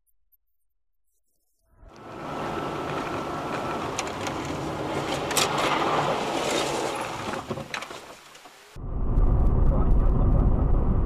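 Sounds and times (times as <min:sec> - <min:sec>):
tyres on wet road: 0:01.9 - 0:08.8.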